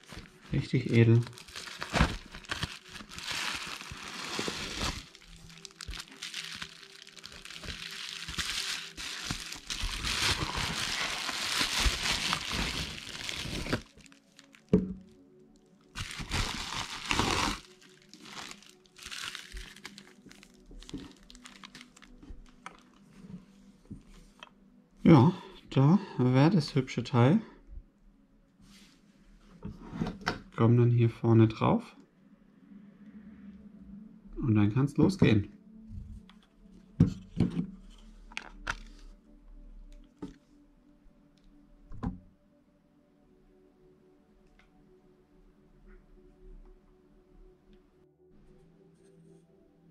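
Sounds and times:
packaging crinkling: 0.0s - 14.8s, 15.9s - 23.0s.

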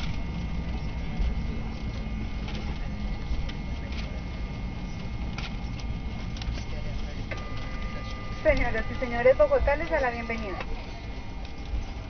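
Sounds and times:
airliner cabin rumble: 0.0s - 12.0s
jet engine whine: 0.0s - 12.0s.

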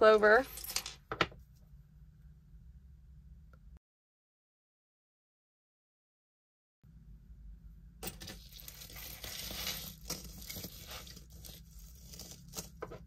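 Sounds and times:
low steady hum: 0.0s - 3.8s, 6.9s - 13.0s
wrapping crinkling and rustling: 8.2s - 13.0s.

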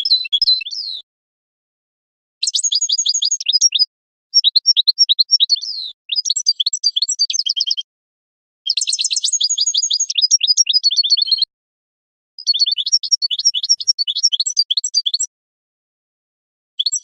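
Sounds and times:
goldfinch twittering song: 0.0s - 1.0s, 2.4s - 7.9s, 8.7s - 11.5s, 12.4s - 15.3s, 16.8s - 17.0s.

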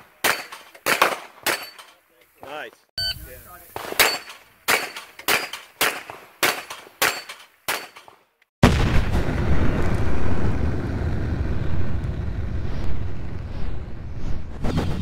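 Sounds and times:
pistol shots: 0.2s - 1.8s, 3.8s - 8.0s
deep whooshing sound effect: 9.0s - 15.0s.

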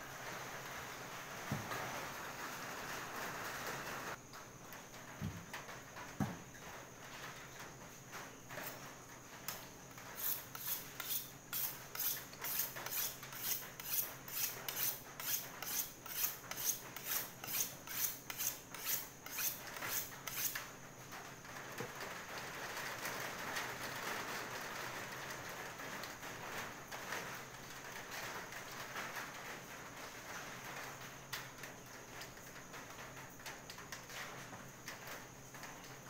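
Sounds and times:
steady hiss: 0.0s - 36.0s
knife honed on sharpening steel: 10.2s - 20.6s.

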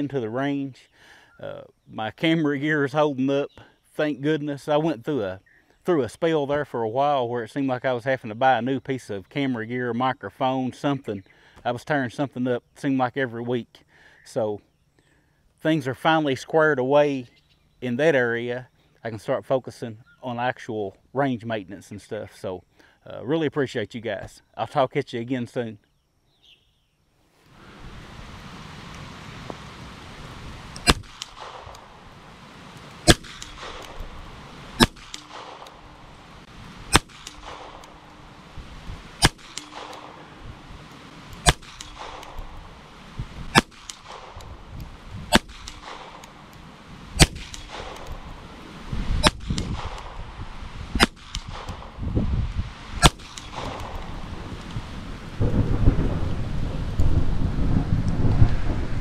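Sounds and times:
pistol shots: 30.8s - 32.0s, 33.0s - 36.1s, 36.8s - 38.2s, 39.1s - 40.4s, 41.3s - 42.8s, 43.5s - 44.5s, 45.3s - 48.4s, 49.2s - 50.2s, 51.0s - 52.0s, 53.0s - 54.1s
heavy low rumble: 39.8s - 59.0s.

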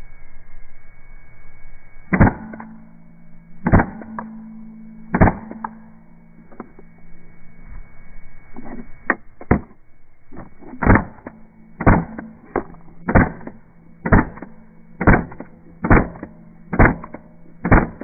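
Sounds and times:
faint steady hum: 0.0s - 18.0s
sharp loud thumps: 3.6s - 6.7s.

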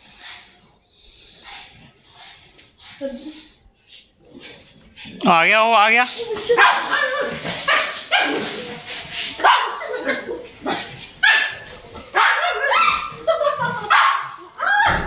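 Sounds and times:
dog yelping: 12.2s - 13.2s.

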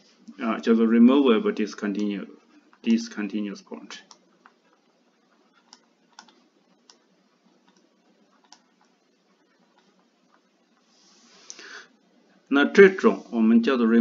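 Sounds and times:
stylus tapping tablet screen: 3.9s - 11.6s.

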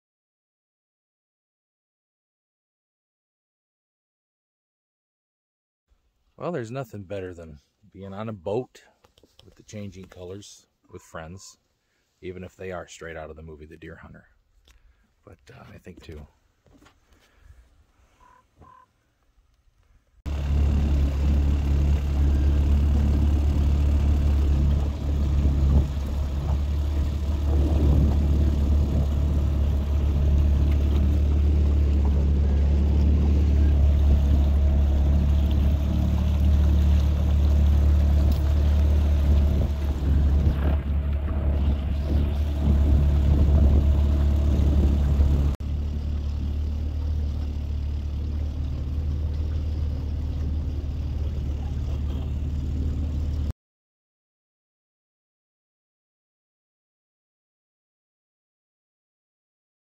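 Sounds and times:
outboard motor drone: 20.3s - 53.5s.

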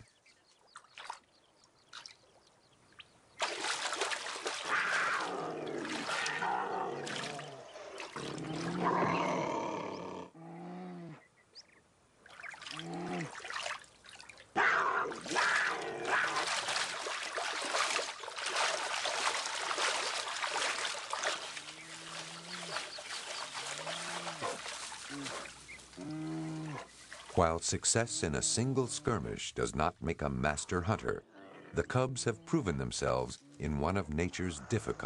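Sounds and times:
pitched growling calls: 4.7s - 11.3s.

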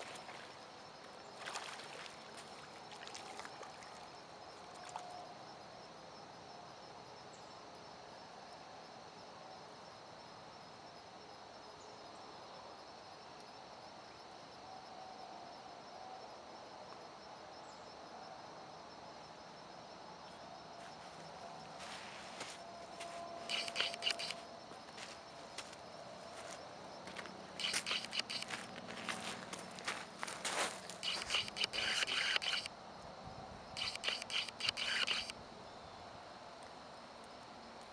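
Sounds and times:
pulsing insect trill: 19.6s - 35.8s
short clicks and rustles: 23.4s - 24.4s, 27.6s - 28.6s, 30.9s - 32.7s, 33.8s - 35.3s.

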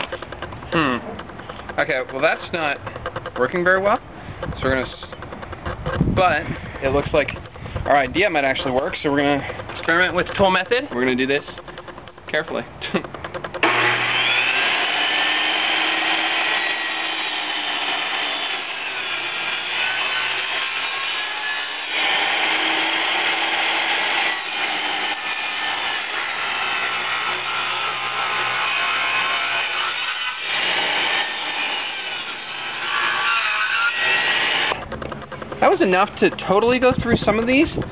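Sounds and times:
table saw cutting wood: 13.6s - 34.9s.

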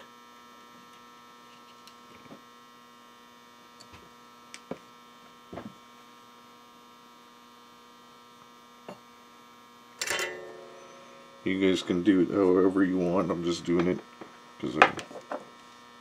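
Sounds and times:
electrical hum: 0.0s - 16.0s
faint high whine: 10.0s - 15.2s.

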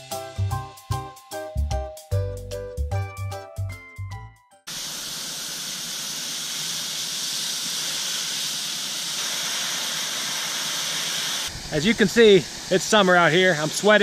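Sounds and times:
background music: 0.0s - 4.6s
hose spraying water onto soil: 4.7s - 14.0s.

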